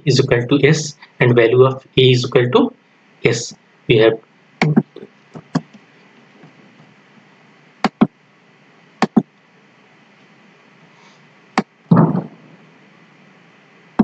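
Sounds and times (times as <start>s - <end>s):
computer mouse clicks: 7.8s - 8.1s, 9.0s - 9.3s
muffled thump: 11.9s - 12.4s.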